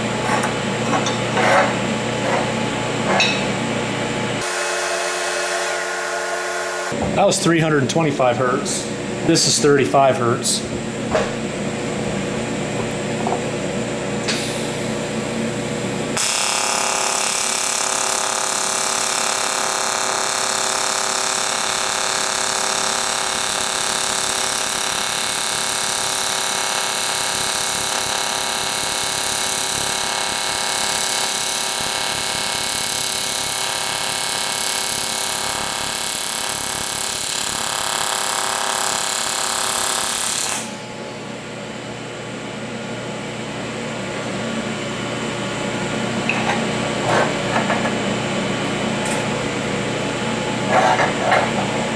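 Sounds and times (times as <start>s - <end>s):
welding arc buzzing: 4.4s - 7.0s, 14.2s - 41.1s.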